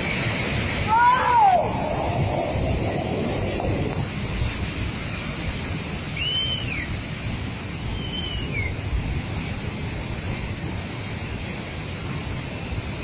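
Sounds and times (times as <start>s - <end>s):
landslide flow rushing: 0.0s - 13.0s
wind on microphone: 0.0s - 13.0s
short whistles: 6.1s - 6.9s, 7.9s - 8.8s.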